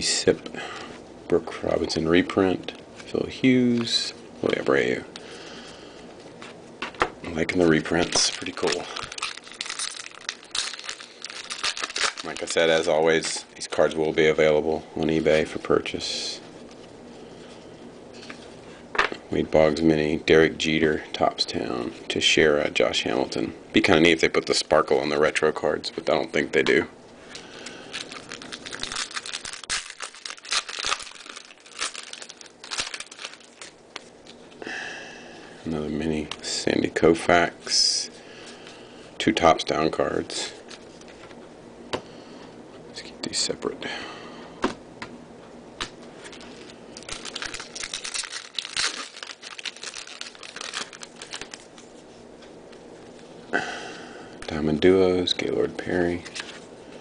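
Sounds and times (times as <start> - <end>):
foil wrapper crinkling and tearing: 7.4 - 13.9, 27.6 - 34.4, 46.2 - 51.9.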